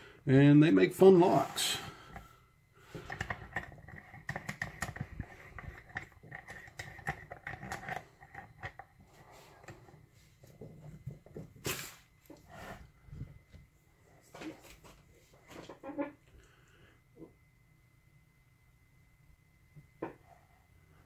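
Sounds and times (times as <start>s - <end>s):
light clicks taps and scrapes: 2.0s - 11.6s.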